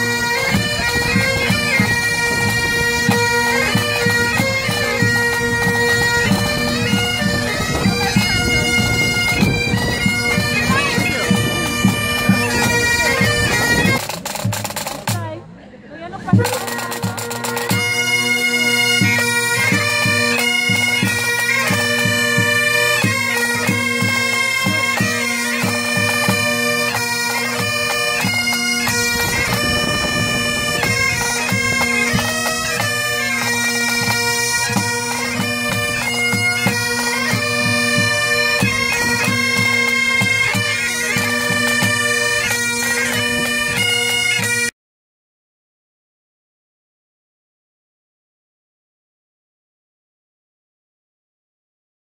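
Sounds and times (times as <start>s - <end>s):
bagpipes playing fast tune: 0.0s - 15.2s, 16.3s - 44.7s
snare and tenor drums: 0.5s - 15.4s, 16.3s - 42.3s.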